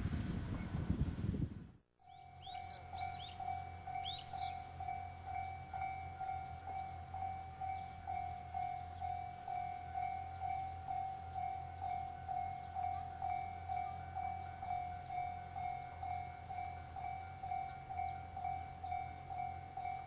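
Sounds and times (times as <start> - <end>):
level-crossing alarm bell: 2.0 - 20.0
birds chirping: 2.1 - 4.7.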